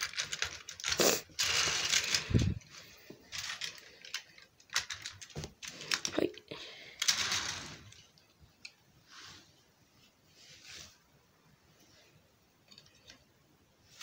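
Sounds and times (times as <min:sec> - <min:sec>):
plastic toy train scraping and clicking: 0:00.0 - 0:06.3, 0:07.0 - 0:08.8.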